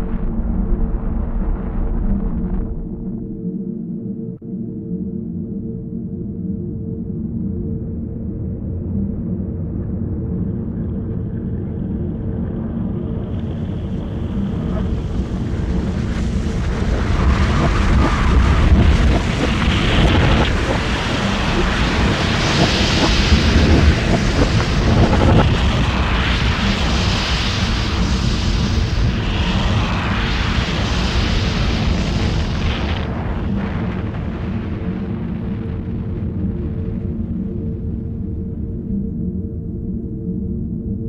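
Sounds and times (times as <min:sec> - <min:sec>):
loud rushing rumbling noise: 0:00.0 - 0:03.4, 0:13.3 - 0:36.8
low steady hum: 0:33.1 - 0:41.0.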